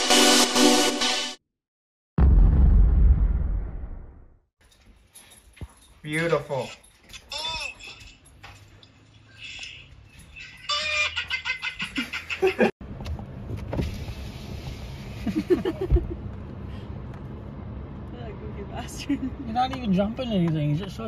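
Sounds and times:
rapid cackling laughter: 10.4 - 12.7
low vehicle rumble: 12.8 - 21.0.

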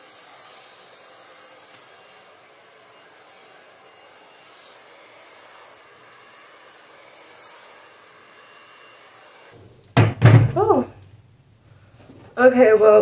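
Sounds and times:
hair dryer blowing: 0.0 - 9.8.

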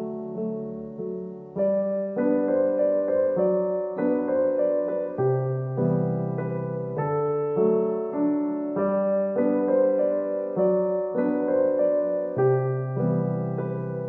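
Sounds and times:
gentle piano music: 0.0 - 14.0.

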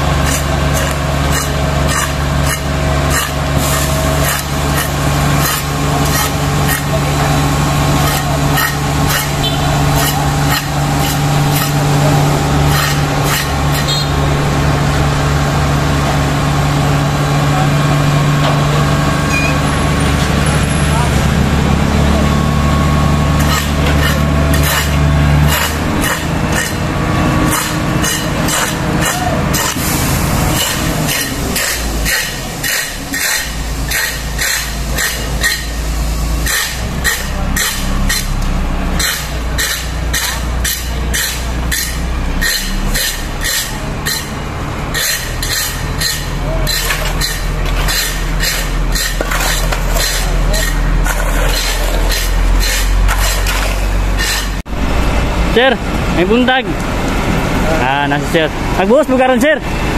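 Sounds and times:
shovels scraping wet concrete: 0.0 - 14.1, 23.2 - 54.6
diesel truck engine running: 0.0 - 59.9.

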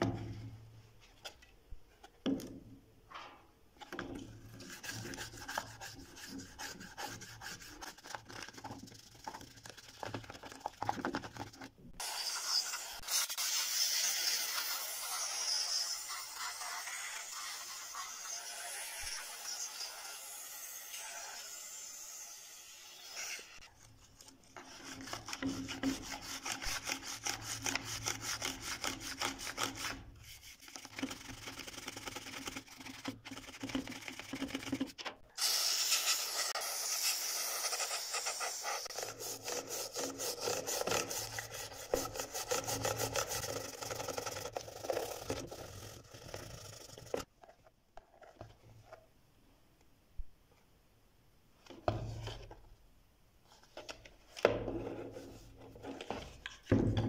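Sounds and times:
toothbrush scrubbing: 4.5 - 11.6, 23.8 - 35.0, 35.9 - 47.3
aerosol can spraying: 35.4 - 43.3.

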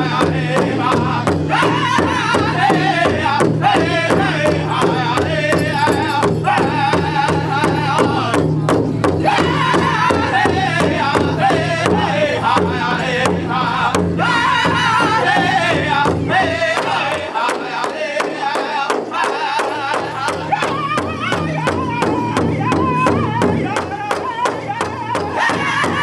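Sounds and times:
group singing: 0.0 - 26.0
large drum beating: 0.0 - 26.0.

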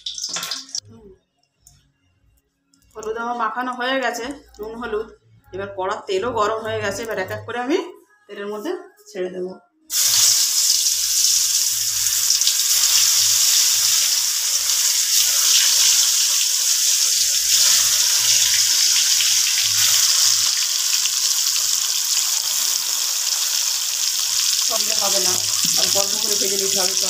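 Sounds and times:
fish sizzling in hot oil: 0.0 - 0.8, 9.9 - 27.0.

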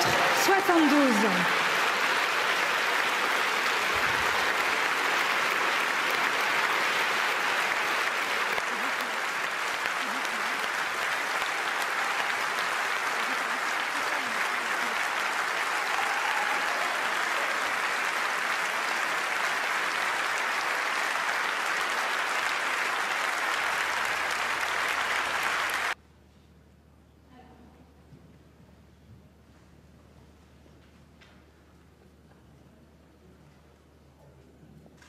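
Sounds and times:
crowd clapping: 0.0 - 26.0.

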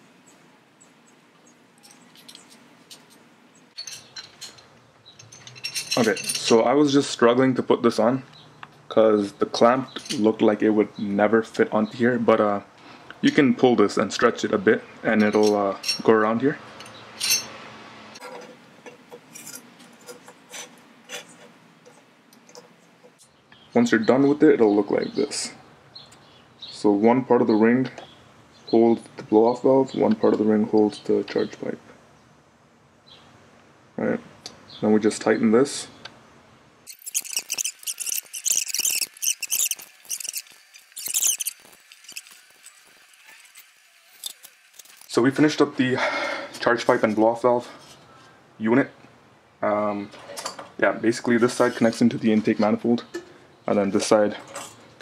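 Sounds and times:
small metal parts clicking: 1.8 - 6.6, 16.8 - 17.5, 18.2 - 23.3, 36.9 - 45.1.

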